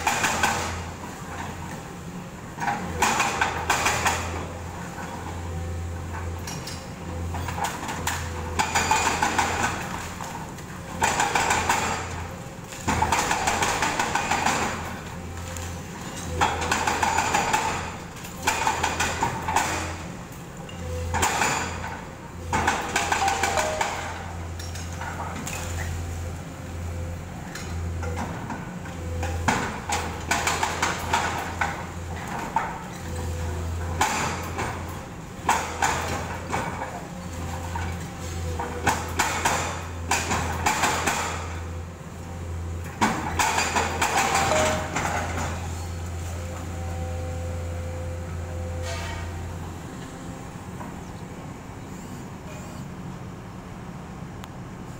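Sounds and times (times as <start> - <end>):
excavator engine hum: 0.0 - 54.9
hydraulic breaker hammering concrete: 11.0 - 12.2, 12.8 - 14.9.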